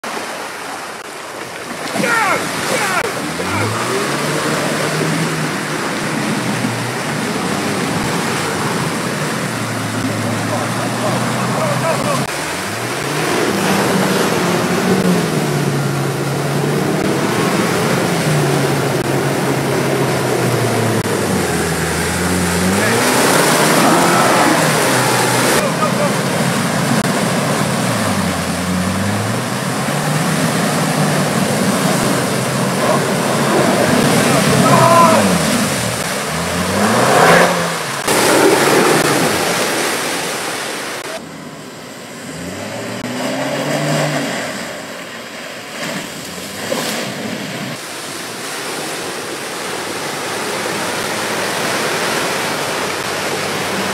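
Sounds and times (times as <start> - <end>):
tyres churning through mud: 0.0 - 53.9
water splashing: 0.0 - 53.9
car engine running: 1.9 - 39.8.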